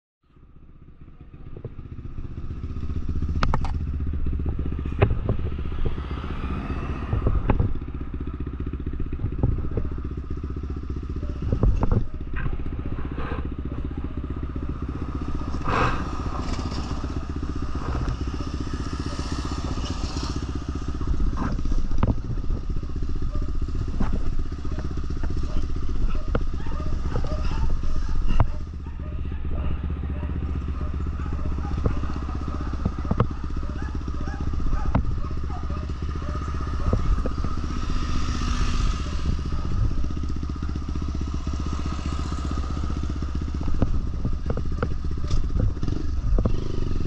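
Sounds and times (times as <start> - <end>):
motorcycle engine running: 0.2 - 47.0
sharp clicks and knocks: 3.3 - 8.4, 9.0 - 10.1, 10.8 - 13.8, 14.6 - 28.8, 29.8 - 37.8, 42.7 - 47.0.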